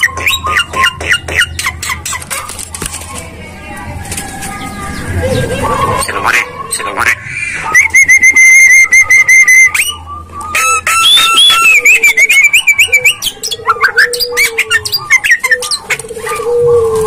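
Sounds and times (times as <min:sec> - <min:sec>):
bird singing whistles and clicks: 0:07.8 - 0:16.1.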